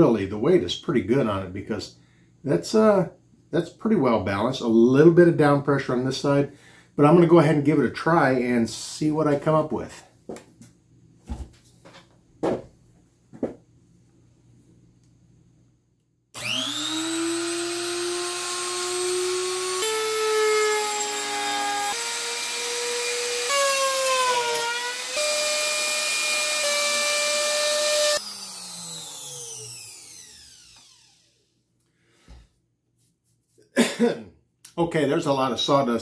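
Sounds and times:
router cutting wood: 16.4 - 31.4.

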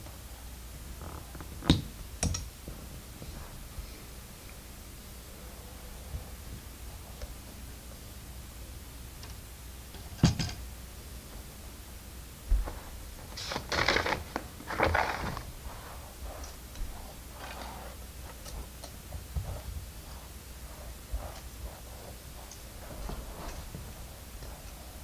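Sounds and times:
plastic pieces rustling and rattling: 13.4 - 15.5.

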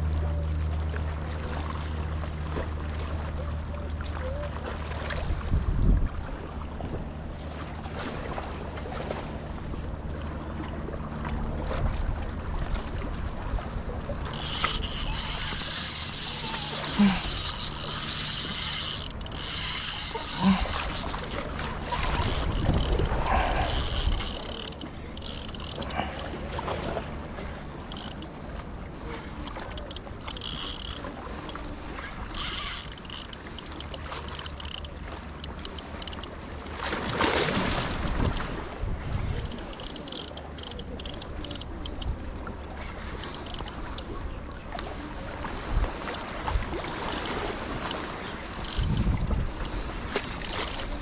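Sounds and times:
fishing reel clicking and ratcheting: 14.2 - 26.4, 27.8 - 28.3, 29.4 - 31.6, 32.3 - 36.3, 37.4 - 38.5, 39.4 - 42.1, 43.2 - 44.1, 46.9 - 51.0.

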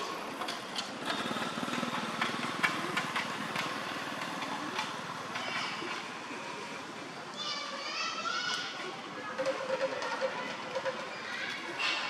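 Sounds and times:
small engine running: 0.3 - 6.7.

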